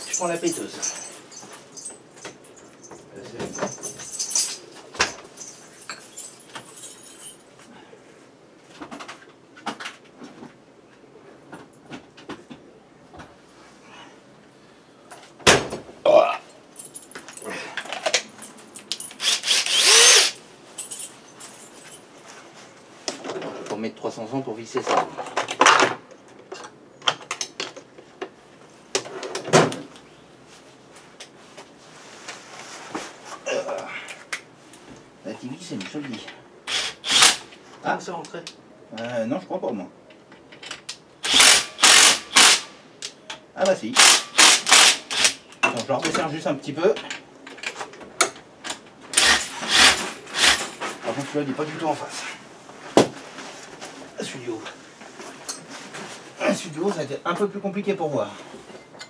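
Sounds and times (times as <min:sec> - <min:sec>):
metal tools clinking: 0:00.0 - 0:07.6, 0:16.8 - 0:22.1
hand tools clicking and knocking: 0:47.0 - 0:51.0.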